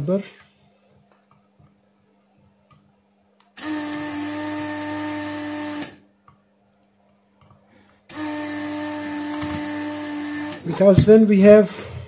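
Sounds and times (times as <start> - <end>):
desoldering pump motor humming: 3.6 - 6.0, 8.1 - 11.2.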